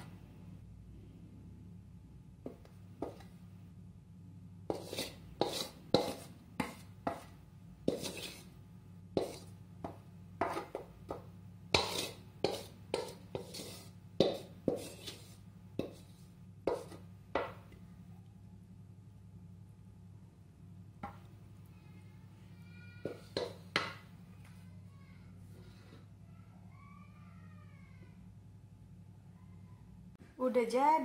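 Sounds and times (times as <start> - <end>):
low steady hum: 0.0 - 31.0
wooden spatula scraping metal pan: 4.7 - 7.3, 7.9 - 8.6, 9.2 - 17.6, 23.0 - 24.0.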